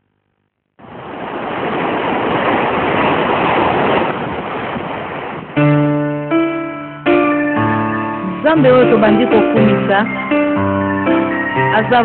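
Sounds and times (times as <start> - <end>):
ocean surf rushing: 0.8 - 12.0
held keyboard chords: 5.6 - 12.0.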